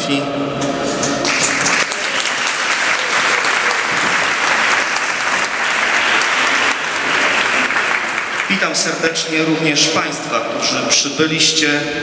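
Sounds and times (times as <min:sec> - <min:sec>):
audience applauding: 0:01.0 - 0:09.6.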